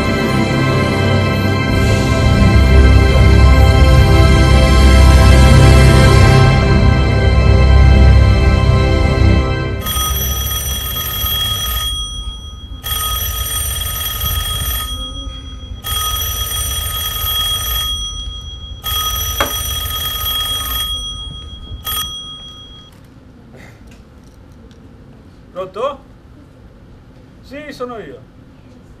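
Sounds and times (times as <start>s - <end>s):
telephone ringing: 9.8s - 23.0s.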